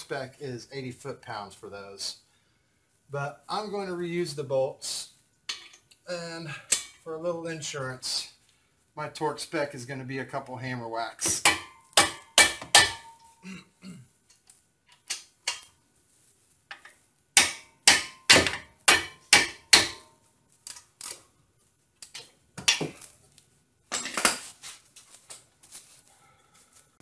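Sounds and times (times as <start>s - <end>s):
hammer striking wrench: 11.3s - 13.3s, 17.4s - 20.1s.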